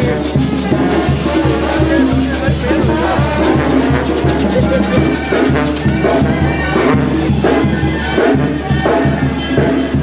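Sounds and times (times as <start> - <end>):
music with steady drum beat: 0.0 - 10.0.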